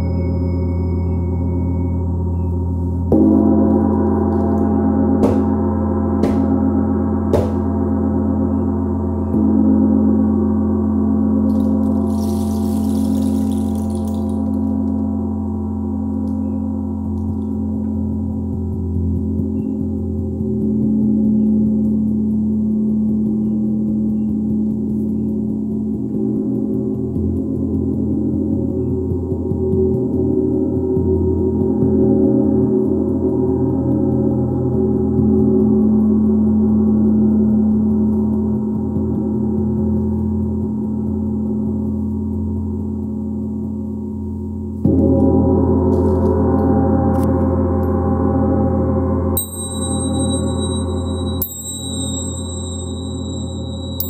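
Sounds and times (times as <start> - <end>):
gong ringing: 3.1 - 8.3, 49.4 - 54.0.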